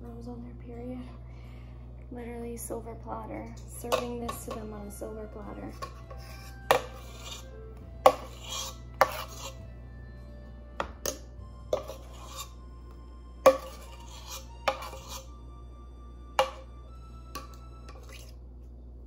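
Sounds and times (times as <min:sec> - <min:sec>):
spatula scraping batter from pot: 0:05.7 - 0:09.6, 0:11.7 - 0:12.6, 0:13.5 - 0:15.3.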